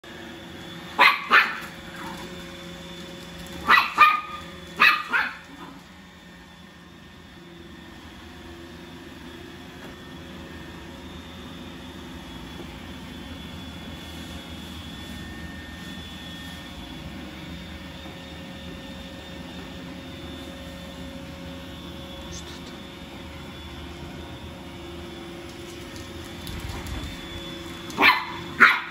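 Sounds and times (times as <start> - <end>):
robot vacuum humming: 0.1 - 28.9
puppy barking: 1.0 - 1.7, 3.6 - 5.8, 28.0 - 28.9.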